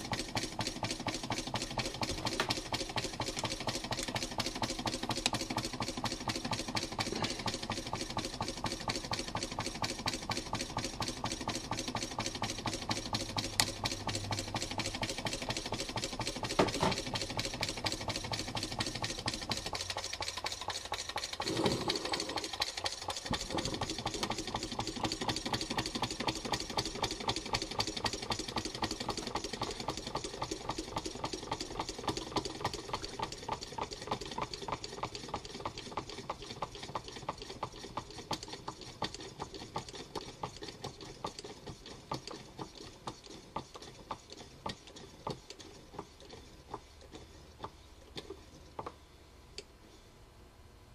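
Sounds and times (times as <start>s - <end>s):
small engine mechanical clatter: 0.0s - 49.0s.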